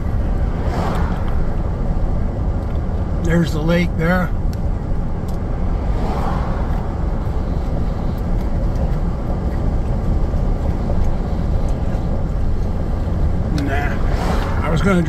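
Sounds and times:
vehicle road noise from inside: 0:00.0 - 0:15.0.

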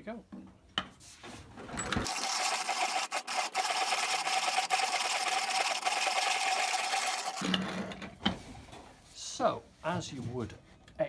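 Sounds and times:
hand coffee grinder rasping: 0:02.0 - 0:07.4.

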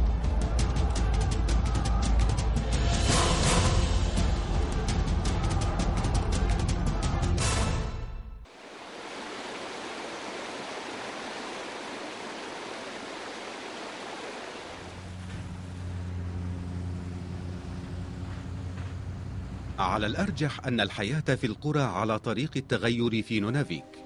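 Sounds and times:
music with a beat: 0:00.0 - 0:07.4
stream water rushing: 0:08.5 - 0:16.5
truck engine humming: 0:11.0 - 0:20.4.

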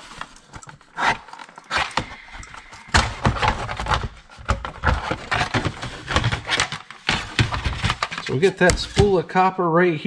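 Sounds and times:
plastic case clicking and cracking: 0:00.2 - 0:09.2.

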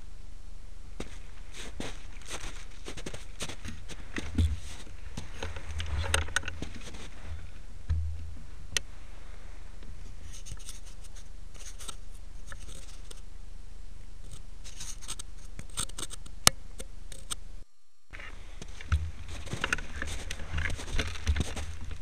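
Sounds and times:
steady low rumble: 0:00.0 - 0:10.3, 0:17.5 - 0:22.0
clothing rustling on microphone: 0:01.0 - 0:07.7, 0:18.2 - 0:22.0.

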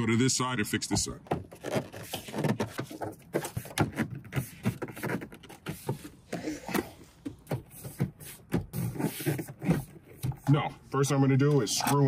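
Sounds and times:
phone handling knocks and rustles: 0:01.2 - 0:10.6.

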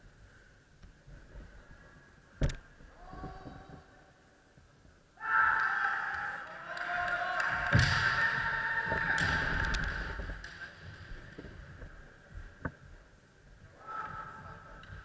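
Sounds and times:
drawn-out shouts: 0:05.2 - 0:09.8.

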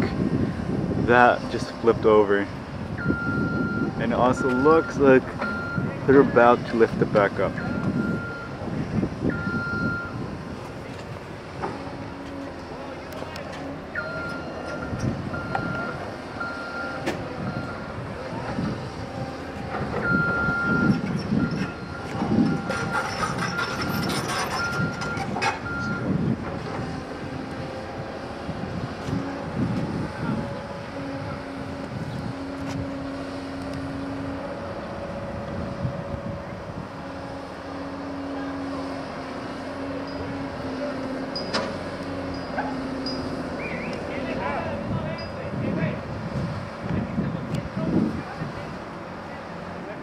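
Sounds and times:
diesel engines rumbling: 0:00.0 - 0:50.0
reversing alarm beeping: 0:03.0 - 0:06.0, 0:07.5 - 0:08.6, 0:09.2 - 0:10.3, 0:13.9 - 0:17.9, 0:20.0 - 0:26.2.

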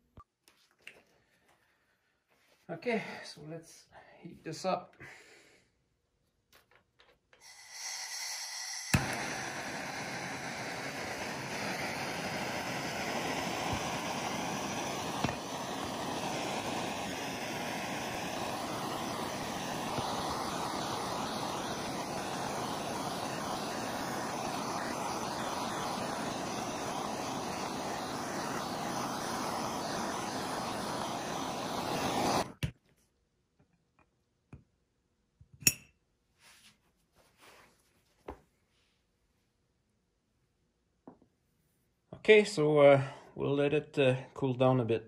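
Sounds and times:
gas torch hissing roar: 0:07.4 - 0:32.6.

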